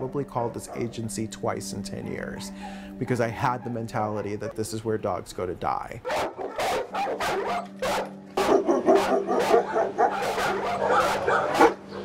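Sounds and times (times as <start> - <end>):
many dogs barking: 0.4 - 1.0, 3.4 - 4.8, 6.0 - 12.0.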